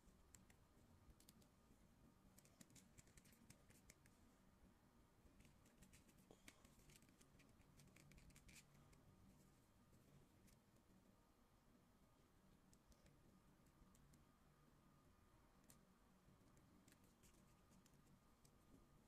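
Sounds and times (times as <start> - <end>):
plastic figure clicks and scratches: 2.4 - 4.2, 5.4 - 9.0.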